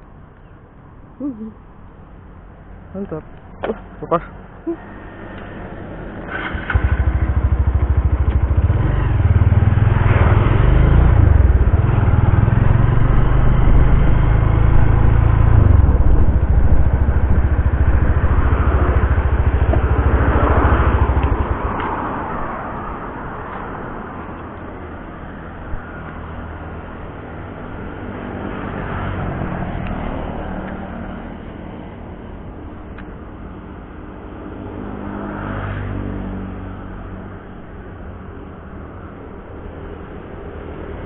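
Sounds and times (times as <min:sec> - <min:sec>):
motorcycle engine running: 0:06.2 - 0:22.0.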